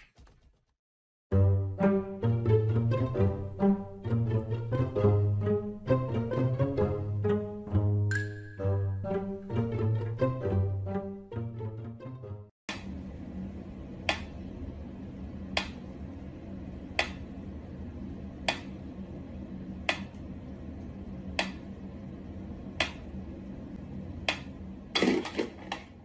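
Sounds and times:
steady low hum: 12.7 - 26.0.

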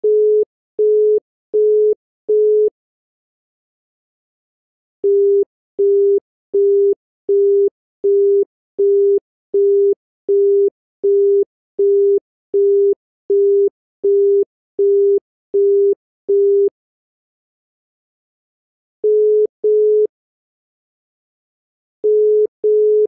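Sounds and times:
telephone busy tone beeps: 0.0 - 2.7, 5.0 - 16.7, 19.0 - 20.1, 22.0 - 23.0.

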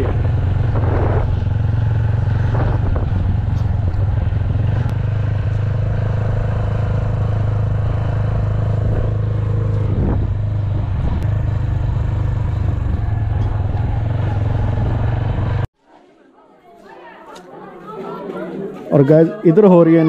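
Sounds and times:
road and wind noise: 0.0 - 15.7
vehicle engine humming: 0.0 - 15.7.

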